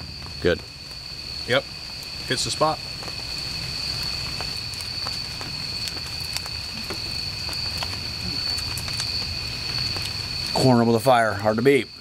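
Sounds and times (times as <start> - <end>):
crickets trilling: 0.0 - 12.0
sharp clicks and crackles: 3.0 - 10.6.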